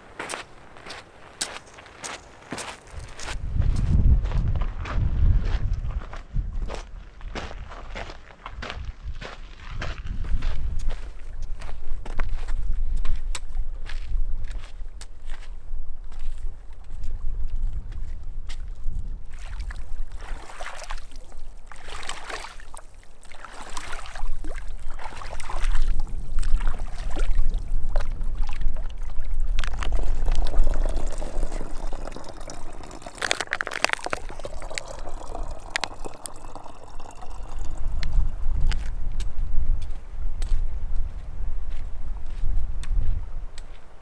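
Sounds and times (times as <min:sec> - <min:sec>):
wind on microphone: 0:02.9 - 0:07.7, 0:08.6 - 0:14.9, 0:15.6 - 0:20.2, 0:24.2 - 0:33.0, 0:34.0 - 0:43.6
water trickling into plastic bottle: 0:19.3 - 0:39.0.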